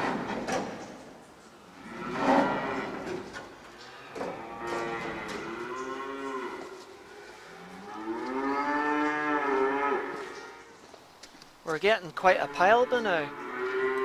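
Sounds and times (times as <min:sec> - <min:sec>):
calf mooing: 0:03.8 - 0:10.8, 0:12.2 - 0:14.0.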